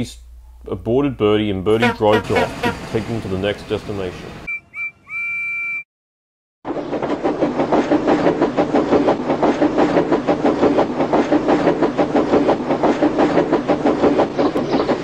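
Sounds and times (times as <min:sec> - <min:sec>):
train wheels clickety-clack: 0:06.7 - 0:15.0.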